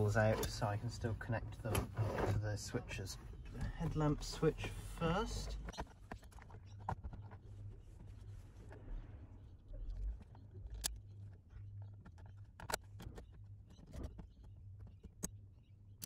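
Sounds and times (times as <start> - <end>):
plastic console clicks and knocks: 3.4 - 8.1, 10.8 - 15.7
low rumble: 7.7 - 11.5.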